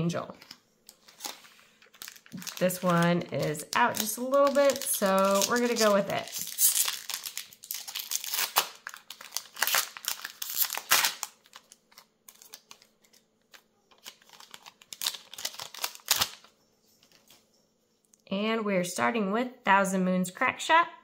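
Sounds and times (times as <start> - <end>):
foil wrapper crinkling and tearing: 0.4 - 16.5.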